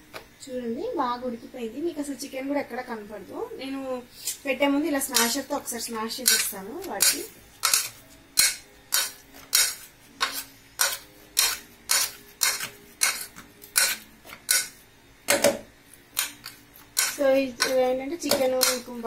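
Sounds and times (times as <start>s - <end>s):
metal masher knocking in a pot: 17.0s - 19.0s.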